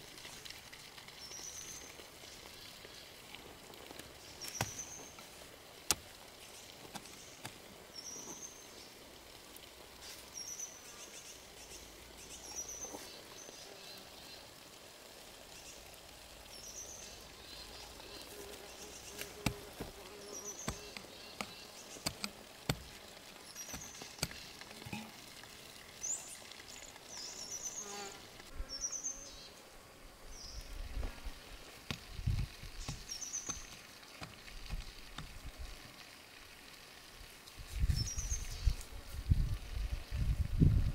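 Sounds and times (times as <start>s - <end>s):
hand hoe chopping soil: 3.9s - 5.0s, 5.8s - 6.1s, 6.8s - 7.6s, 19.1s - 25.1s, 31.8s - 35.4s.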